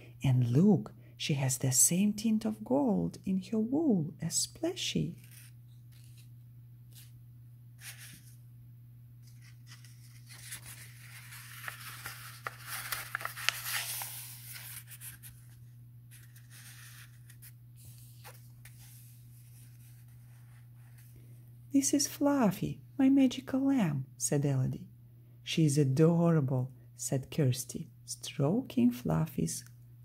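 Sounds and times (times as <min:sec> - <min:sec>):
low steady hum: 0:00.0 - 0:30.0
book pages rustling: 0:05.2 - 0:07.2, 0:07.8 - 0:08.4, 0:09.2 - 0:21.3.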